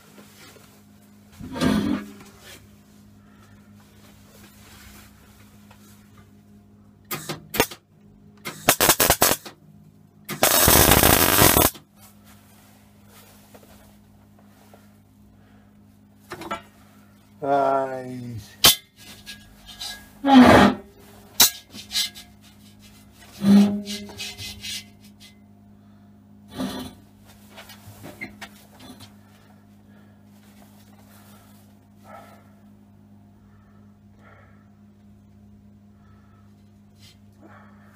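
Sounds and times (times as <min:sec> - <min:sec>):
low welder hum: 0:08.4 - 0:09.5, 0:10.2 - 0:11.8
arc welding crackle: 0:08.6 - 0:09.5, 0:10.3 - 0:11.8
falling whine: 0:10.4 - 0:11.7.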